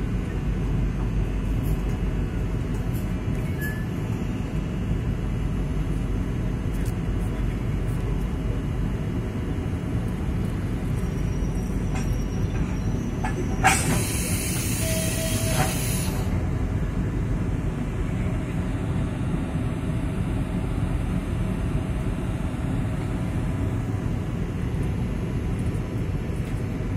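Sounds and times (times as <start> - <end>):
electric locomotive rumble: 0.0 - 26.9
hiss of air: 13.7 - 16.3.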